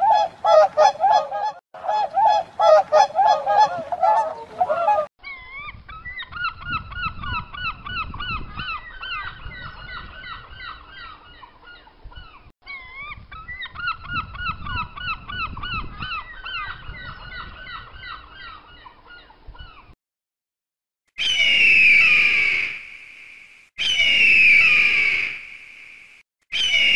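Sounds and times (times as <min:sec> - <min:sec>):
gulls yelping calls: 0:00.0 - 0:05.1, 0:26.6 - 0:26.9.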